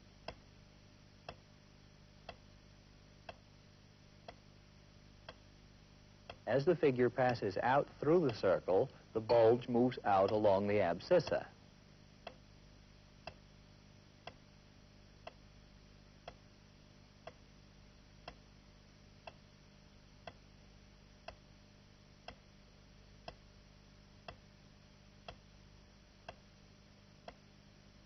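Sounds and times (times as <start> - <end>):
low steady hum and hiss: 0.0 - 28.0
faint ticks: 0.1 - 0.5, 1.2 - 1.5, 2.2 - 2.5, 3.2 - 3.5, 4.2 - 4.5, 5.2 - 5.5, 6.2 - 6.5, 12.2 - 12.5, 13.2 - 13.5, 14.2 - 14.5, 15.2 - 15.6, 16.2 - 16.5, 17.2 - 17.5, 18.2 - 18.6, 19.2 - 19.6, 20.2 - 20.5, 21.2 - 21.5, 22.2 - 22.5, 23.1 - 23.5, 24.2 - 24.5, 25.2 - 25.6, 26.2 - 26.6, 27.2 - 27.6.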